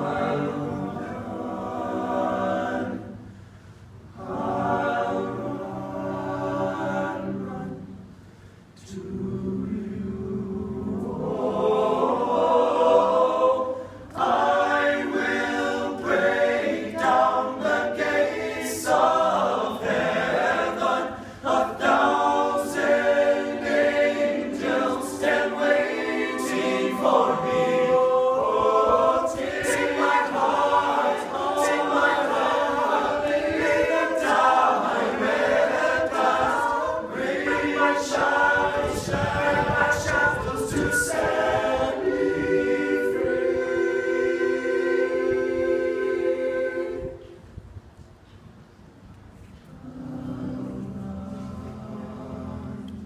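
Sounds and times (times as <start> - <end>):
male a cappella group singing: 0.0 - 3.4, 4.2 - 8.2, 8.8 - 47.4, 49.7 - 53.0.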